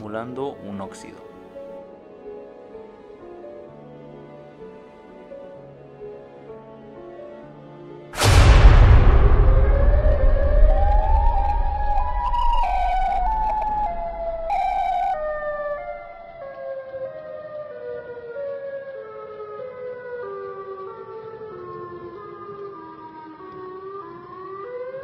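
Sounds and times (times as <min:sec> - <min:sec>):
deep rumble of heavy boom: 0:08.2 - 0:16.2
siren wailing: 0:09.1 - 0:25.0.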